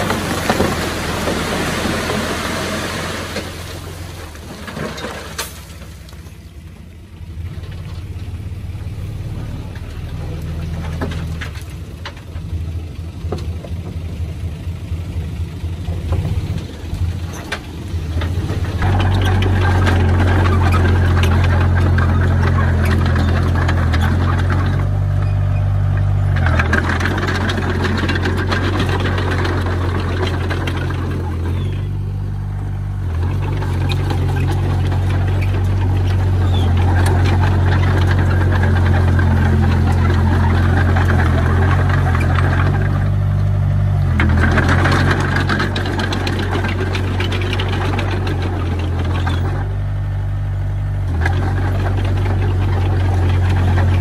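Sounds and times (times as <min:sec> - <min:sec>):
heavy machinery diesel engine: 0:00.0 - 0:54.0.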